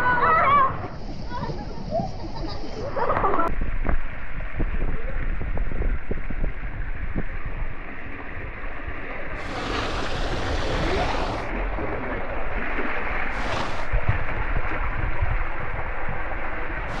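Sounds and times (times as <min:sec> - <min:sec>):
water rushing: 0:09.3 - 0:17.0
bright hiss: 0:09.4 - 0:11.5, 0:13.3 - 0:14.0.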